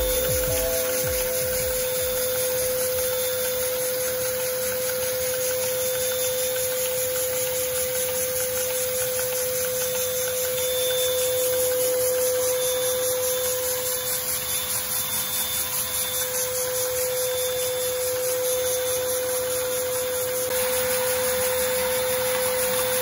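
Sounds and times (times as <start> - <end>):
vacuum drive hiss: 0.0 - 3.0
steady mechanical hum: 0.0 - 23.0.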